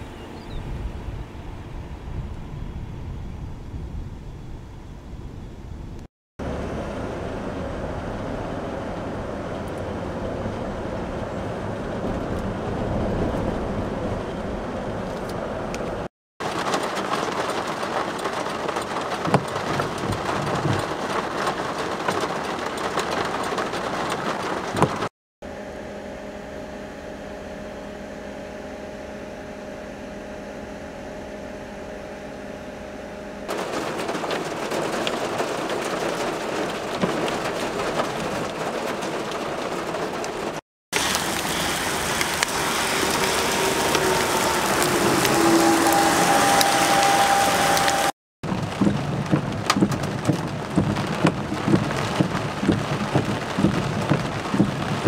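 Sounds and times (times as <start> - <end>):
vehicle road and engine noise: 0.0 - 55.0
rain: 6.4 - 25.1, 33.5 - 55.0
raindrop ticks: 15.7 - 25.1, 33.5 - 46.0, 47.7 - 55.0
steady hum: 25.4 - 33.5
traffic hissing on wet road: 33.5 - 48.1.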